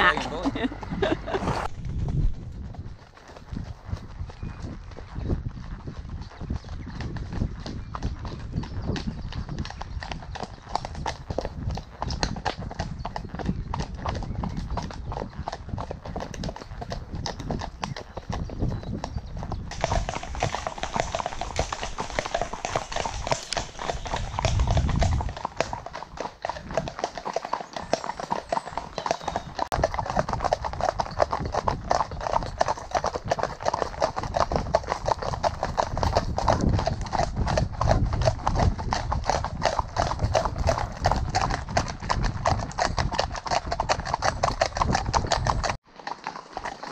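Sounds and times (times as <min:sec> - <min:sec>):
horses' hooves clip-clopping: 0:00.0 - 0:46.9.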